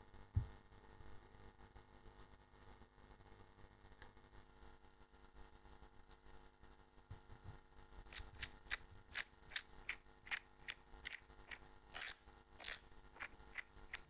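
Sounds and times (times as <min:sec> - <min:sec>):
screwdriver clicking: 0:08.1 - 0:14.0.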